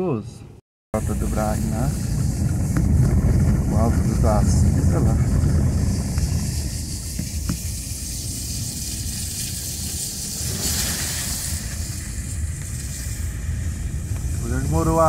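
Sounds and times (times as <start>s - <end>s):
car engine and road rumble: 0.1s - 15.0s
tyres hissing on wet road: 1.0s - 15.0s.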